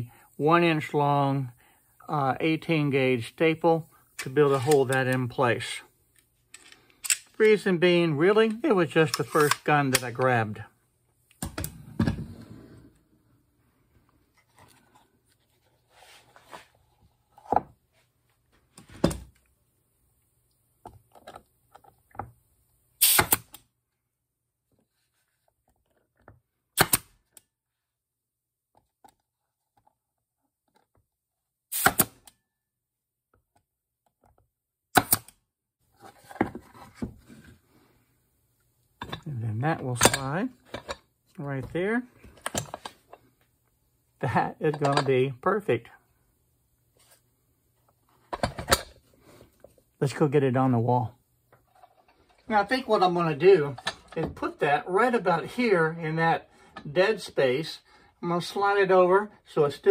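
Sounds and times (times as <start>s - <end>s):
staple gun shots: 23.0s - 23.6s, 26.8s - 27.1s, 31.8s - 32.3s, 35.0s - 35.3s.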